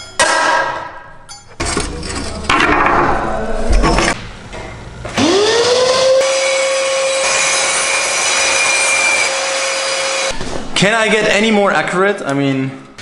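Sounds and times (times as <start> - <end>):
electric saw cutting wood: 5.1 - 10.4.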